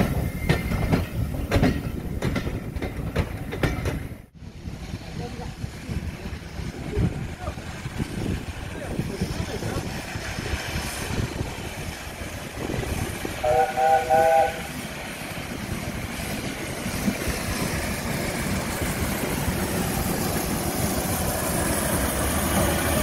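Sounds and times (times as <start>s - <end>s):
train rumbling along track: 0.0s - 23.0s
steam locomotive whistle toots: 13.3s - 14.8s.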